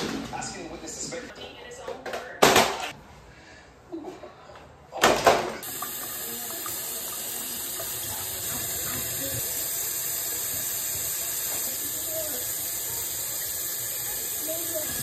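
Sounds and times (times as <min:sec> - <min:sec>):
water running: 0:05.5 - 0:15.0.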